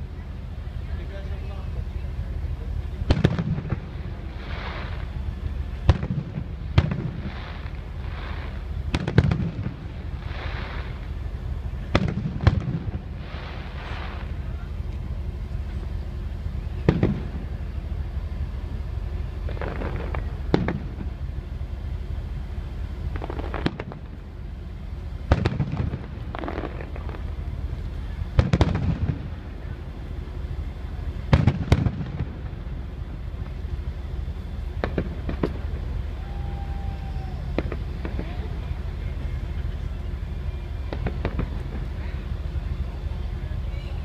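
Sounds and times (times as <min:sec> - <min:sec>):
low background noise: 0:00.0 - 0:44.0
firework shells bursting: 0:03.0 - 0:15.1, 0:23.0 - 0:24.3, 0:25.2 - 0:29.5, 0:37.4 - 0:38.8, 0:40.9 - 0:42.0.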